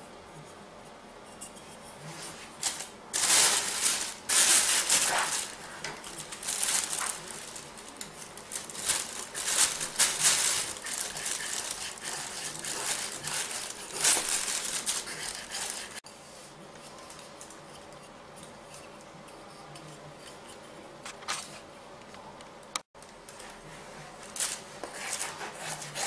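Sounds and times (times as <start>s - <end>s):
knife scraping wooden stick: 1.2s - 2.6s
plastic bag crinkling: 2.6s - 16.0s.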